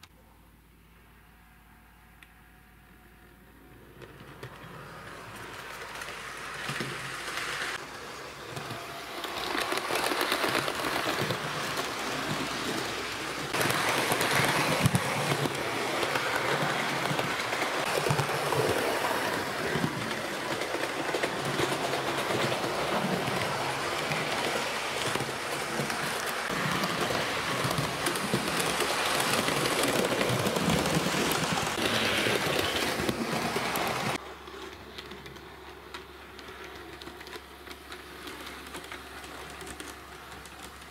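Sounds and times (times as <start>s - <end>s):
rapid clatter of clicks: 8.5s - 40.9s.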